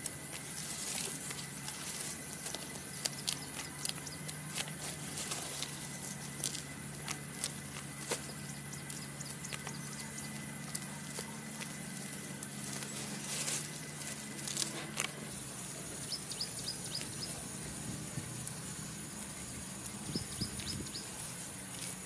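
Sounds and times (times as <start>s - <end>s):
high insect drone: 0.0s - 22.0s
high chirps: 16.0s - 17.5s.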